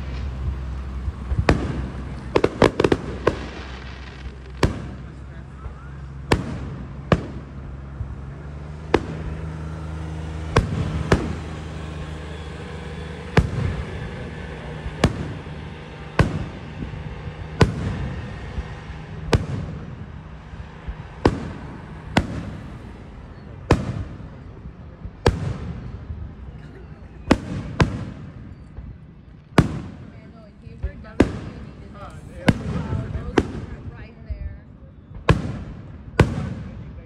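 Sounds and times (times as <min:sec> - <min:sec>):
firework shells bursting: 0:00.0 - 0:26.2.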